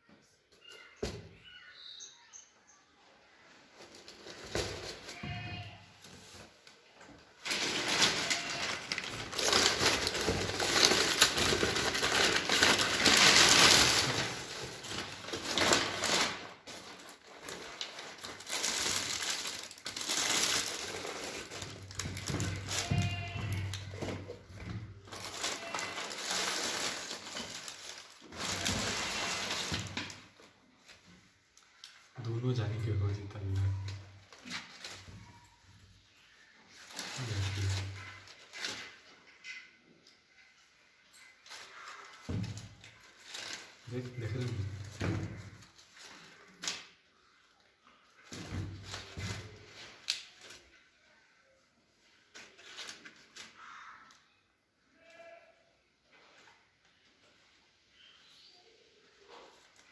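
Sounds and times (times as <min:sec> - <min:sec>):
rustling: 0:03.4 - 0:39.7, 0:40.3 - 0:51.4
tissue paper crinkling: 0:07.4 - 0:24.2, 0:24.9 - 0:31.0, 0:31.6 - 0:39.1, 0:41.1 - 0:46.9, 0:48.2 - 0:50.8, 0:52.0 - 0:54.0.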